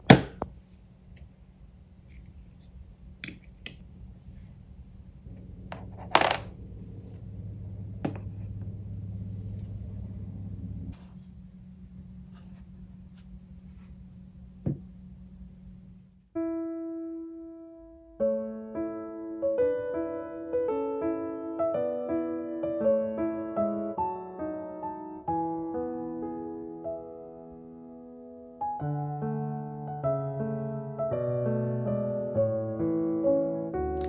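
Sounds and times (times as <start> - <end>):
low steady hum: 0.0 - 16.4
soft piano music: 15.8 - 34.0.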